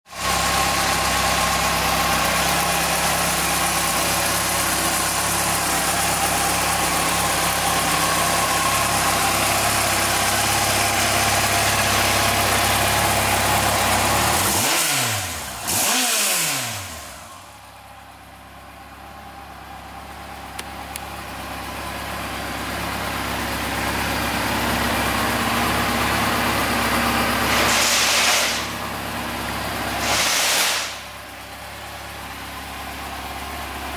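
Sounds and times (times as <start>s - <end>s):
motorcycle engine idling: 0.1s - 33.9s
short rush of noise: 27.5s - 28.7s, 30.0s - 31.0s.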